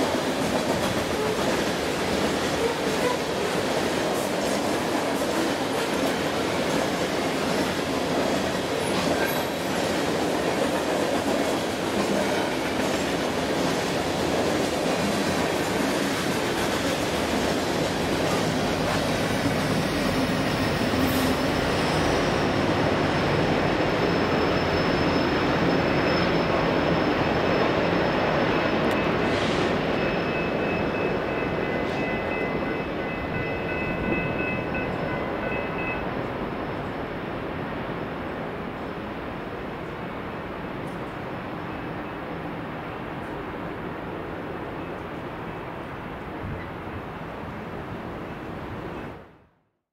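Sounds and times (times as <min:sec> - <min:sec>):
train wheels rumbling on rails: 0:00.0 - 0:49.2.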